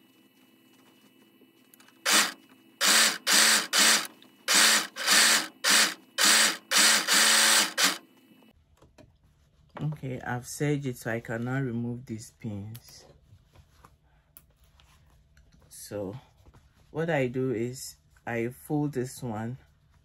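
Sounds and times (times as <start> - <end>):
overlock machine stitching: 2.0 - 8.0.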